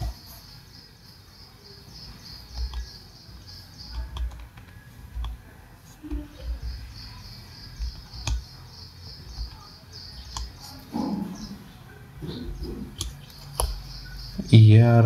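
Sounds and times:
high chirping: 0.0s - 5.0s, 6.1s - 14.8s
calculator tapping on desk: 3.9s - 11.5s.

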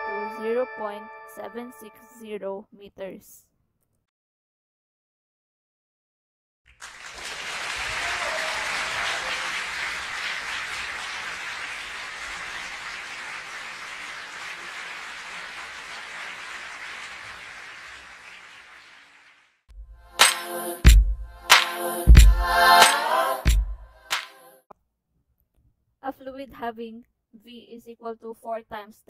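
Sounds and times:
crowd applauding: 6.7s - 19.5s.

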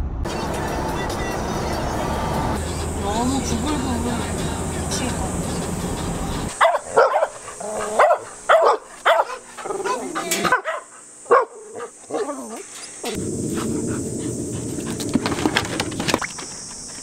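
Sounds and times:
dogs barking and whining: 6.5s - 15.3s
steady rushing noise: 13.1s - 16.2s.

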